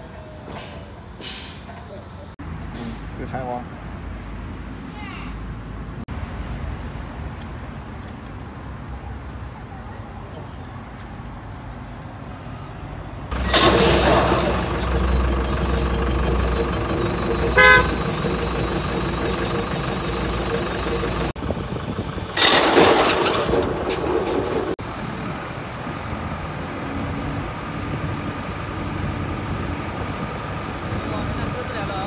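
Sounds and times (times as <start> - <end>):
flail mulcher turning: 13.3 - 21.3
tractor engine running: 13.3 - 24.9
short horn toot: 17.4 - 18.2.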